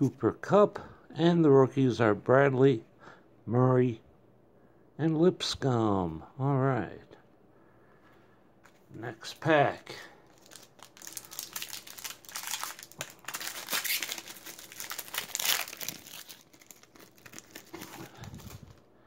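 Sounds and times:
plastic wrapper crinkling and tearing: 0:10.2 - 0:18.9.

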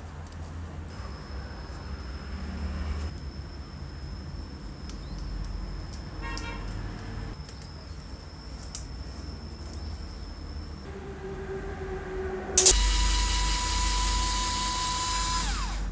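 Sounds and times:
steady low rumble: 0:06.8 - 0:15.9
horn-like toot: 0:10.9 - 0:15.9.

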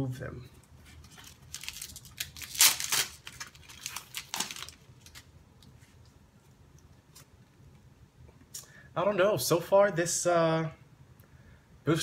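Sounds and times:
cards rustling: 0:00.9 - 0:06.1
foil wrapper tearing and crinkling: 0:01.0 - 0:05.3.

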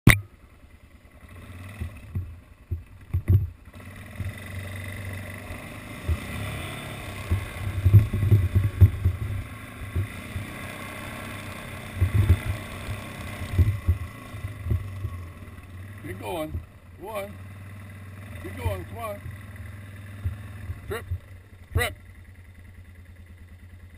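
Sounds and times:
sharp click: 0:00.1 - 0:00.3
quad bike engine running: 0:00.1 - 0:23.9
low thumps: 0:01.8 - 0:03.6, 0:06.0 - 0:16.9, 0:20.1 - 0:21.9.

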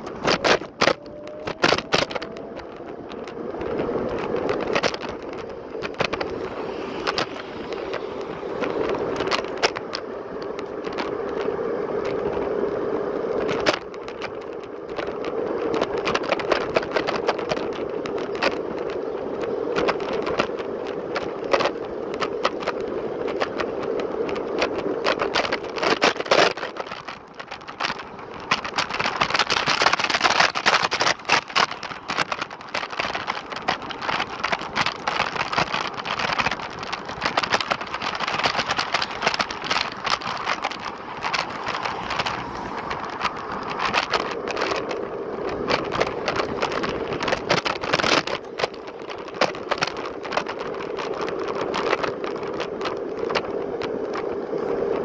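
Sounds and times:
scooter rattling and clicking: 0:00.0 - 0:55.0
steady scooter whine: 0:00.0 - 0:55.0.

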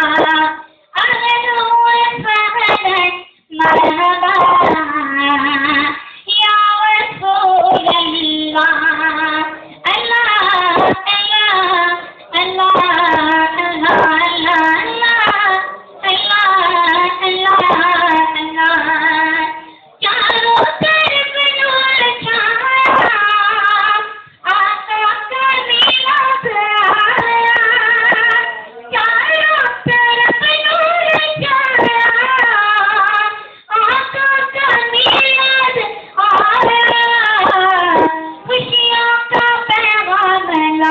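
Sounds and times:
boy singing unaccompanied: 0:00.0 - 0:40.9.

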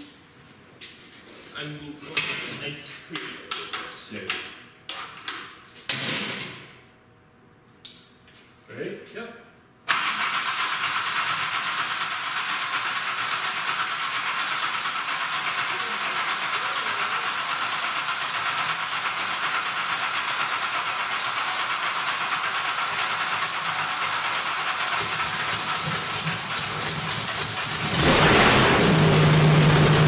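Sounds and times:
race engine running: 0:10.4 - 0:30.0.

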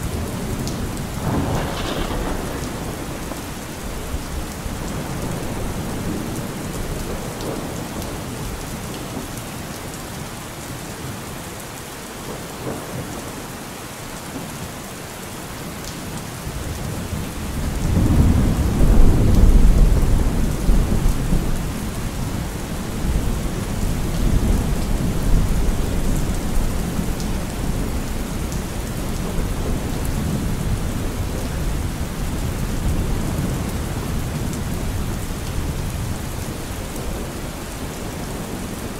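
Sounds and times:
steady rain: 0:00.0 - 0:38.9
low roll of thunder: 0:00.1 - 0:08.4, 0:16.5 - 0:37.2.

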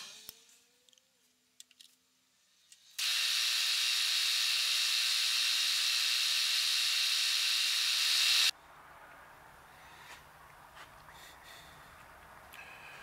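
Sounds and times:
machine hum tones: 0:03.0 - 0:08.5
milling machine cutting hiss: 0:03.0 - 0:08.5.

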